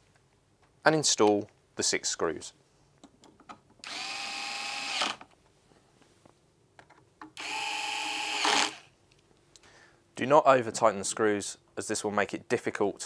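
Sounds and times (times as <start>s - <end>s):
electric screwdriver whine: 3.8s - 5.2s, 7.4s - 8.9s.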